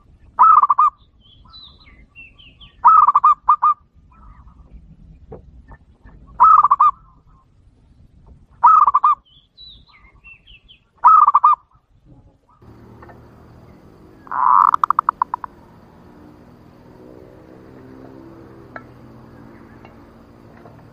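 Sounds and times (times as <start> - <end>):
low steady hum: 12.1 - 20.9
dove cooing: 12.6 - 20.9.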